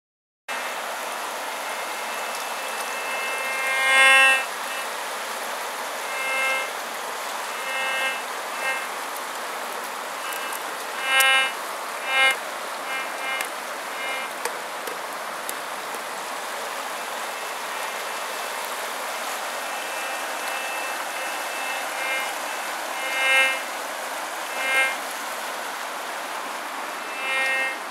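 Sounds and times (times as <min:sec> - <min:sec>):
river water rushing: 0:00.5 - 0:27.1
metal detector beeps: 0:01.6 - 0:04.9, 0:06.0 - 0:06.8, 0:07.5 - 0:08.9, 0:10.2 - 0:14.4, 0:19.4 - 0:23.7, 0:24.5 - 0:25.0, 0:27.0 - 0:27.8.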